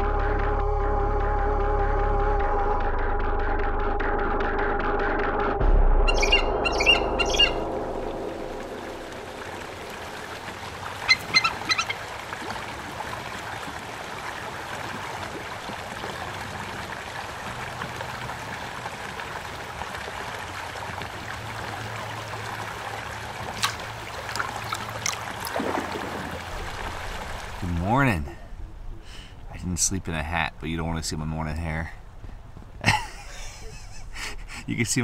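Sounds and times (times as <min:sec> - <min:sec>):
bird calling: 0:06.1 - 0:07.7, 0:10.9 - 0:12.0
river rushing: 0:07.9 - 0:29.7.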